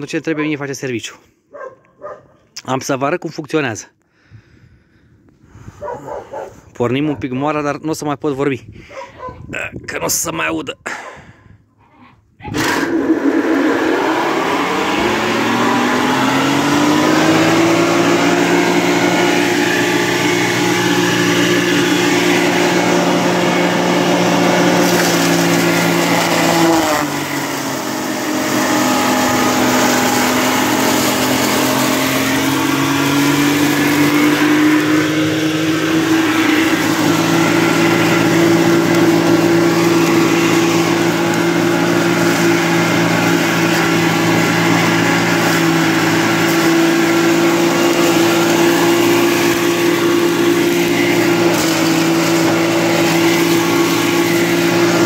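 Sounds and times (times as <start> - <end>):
chopping mill motor whine: 12.6 - 55.0.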